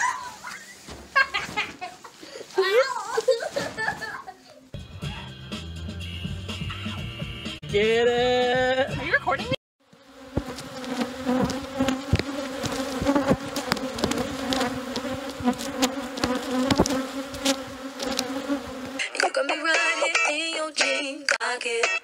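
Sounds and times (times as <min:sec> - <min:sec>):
music with singing: 0:04.8 - 0:09.0, 0:19.0 - 0:22.0
bees buzzing: 0:09.8 - 0:19.2.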